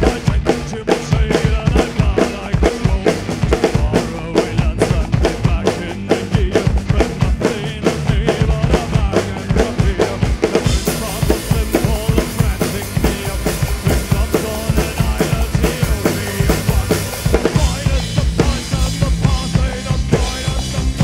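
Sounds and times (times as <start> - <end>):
fast kick drum and snare: 0.0 - 21.0
metal band playing live: 0.0 - 21.0.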